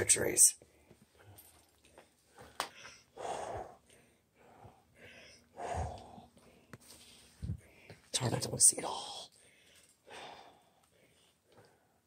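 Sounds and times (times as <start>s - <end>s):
person breathing: 2.3s - 8.1s, 9.3s - 12.0s.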